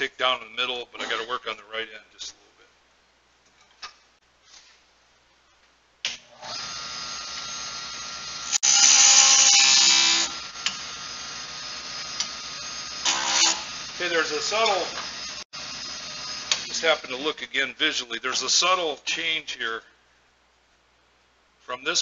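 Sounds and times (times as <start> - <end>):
wood lathe motor whine: 6.3 - 16.7.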